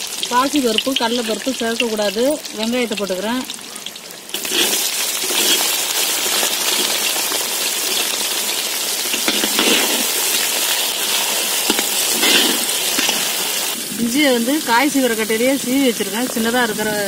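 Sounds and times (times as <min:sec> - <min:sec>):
onions sizzling in hot oil: 0:00.0 - 0:17.0
metal ladle stirring: 0:04.4 - 0:05.8, 0:09.1 - 0:13.8.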